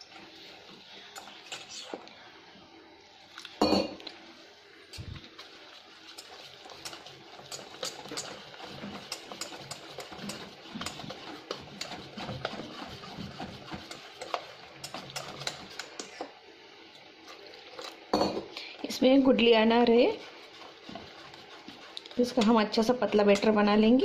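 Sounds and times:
whisk beating batter in metal bowl: 1.1s - 2.0s, 5.2s - 16.2s, 17.3s - 24.0s.

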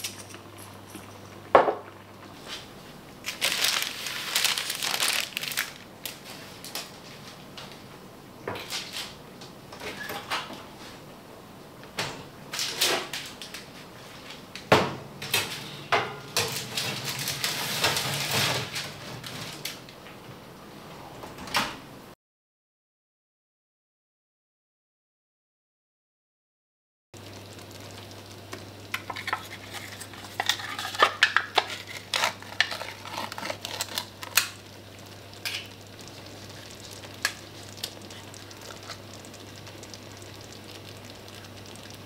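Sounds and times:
cookware clinks and scrapes: 29.0s - 33.6s.

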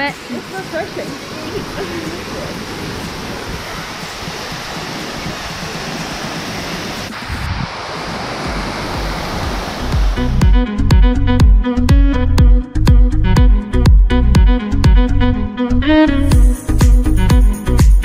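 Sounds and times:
waterfall rushing: 0.0s - 10.6s
low rumble: 7.1s - 11.6s
music: 8.5s - 18.0s.

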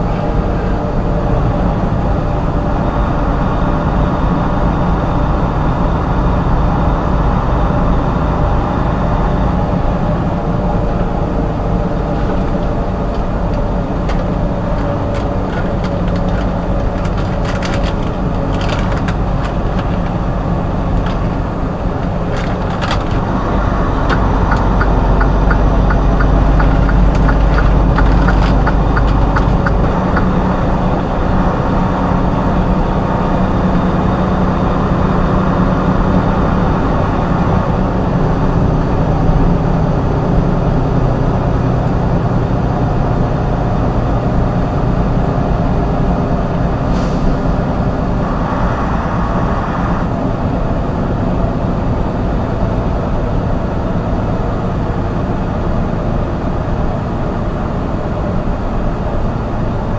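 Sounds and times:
truck engine running: 0.0s - 59.9s
evenly spaced clicks: 24.1s - 30.3s.

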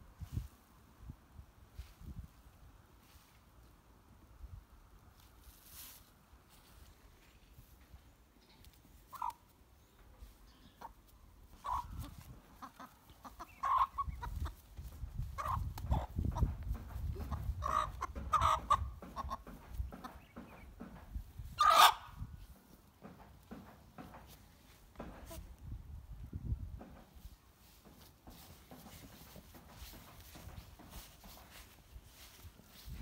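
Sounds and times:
chickens squawking and clucking: 8.9s - 9.6s, 10.2s - 22.3s.

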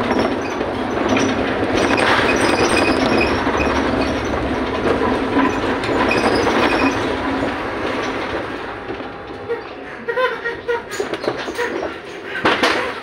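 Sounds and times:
cabin fittings rattling and clinking: 0.0s - 8.4s
bus engine and road noise: 0.0s - 12.9s.

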